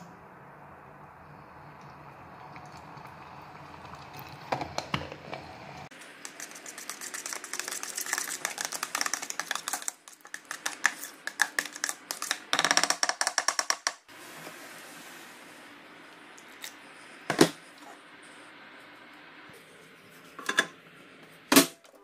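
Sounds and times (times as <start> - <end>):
utensil stirring in plastic bowl: 6.0 - 12.4.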